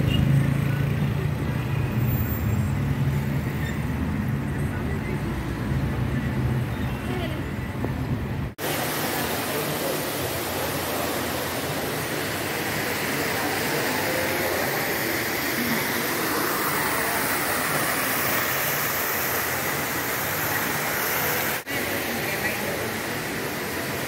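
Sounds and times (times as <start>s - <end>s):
ventilation rushing noise: 7.5s - 24.0s.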